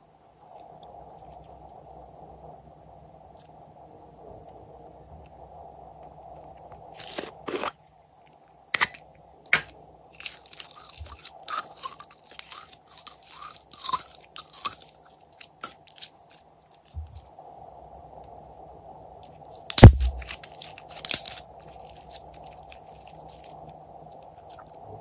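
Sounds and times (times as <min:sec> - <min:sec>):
slime crackling and popping: 0:08.8 - 0:16.1, 0:19.7 - 0:23.6.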